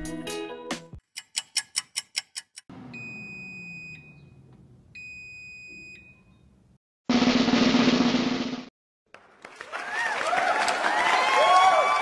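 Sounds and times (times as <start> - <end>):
clock ticking quickly: 1.2 - 2.7.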